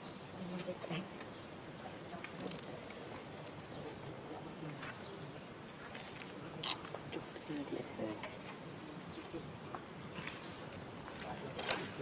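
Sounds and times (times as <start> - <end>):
faint insects: 0.0 - 12.0
small animal sounds: 2.0 - 4.1.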